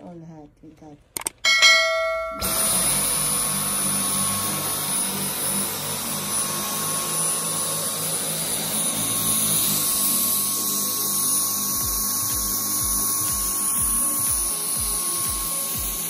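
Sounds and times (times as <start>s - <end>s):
stick vacuum running: 1.2s - 16.0s.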